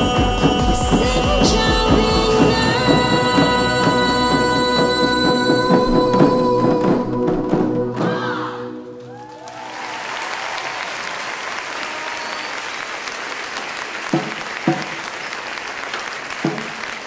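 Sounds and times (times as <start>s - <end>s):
drum music: 0.0s - 8.5s, 14.0s - 15.2s, 16.3s - 17.0s
large audience applauding: 9.0s - 17.0s.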